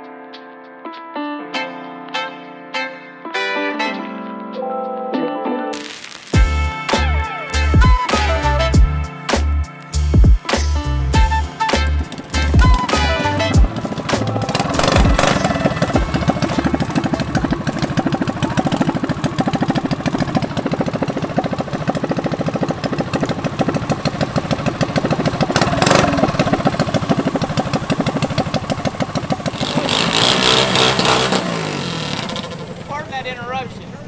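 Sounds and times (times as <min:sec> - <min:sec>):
small engine idling: 0:12.0 - 0:33.9.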